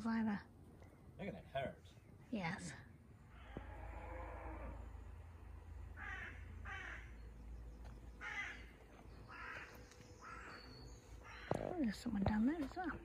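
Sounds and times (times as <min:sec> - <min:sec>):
crow cawing: 0:03.3 - 0:04.7, 0:05.9 - 0:07.2, 0:08.2 - 0:11.6.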